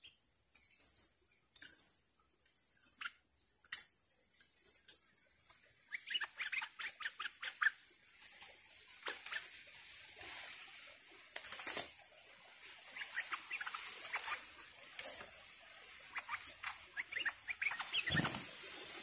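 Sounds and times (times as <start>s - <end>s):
sharp bird clicks: 0.0s - 2.0s, 2.8s - 7.7s, 13.0s - 15.3s
bird chattering calls: 5.9s - 7.8s, 12.9s - 14.6s, 15.9s - 18.5s.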